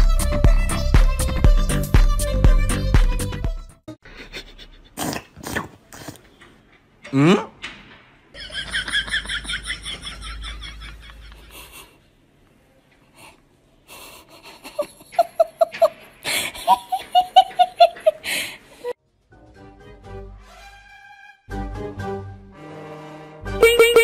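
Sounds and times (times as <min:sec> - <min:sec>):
person laughing: 0:04.1 - 0:05.0, 0:08.4 - 0:12.0, 0:14.0 - 0:18.9.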